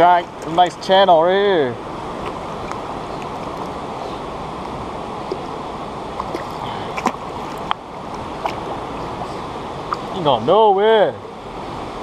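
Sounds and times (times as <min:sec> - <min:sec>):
river current rushing: 0:00.0 - 0:12.0
sharp water splashes: 0:05.2 - 0:10.5.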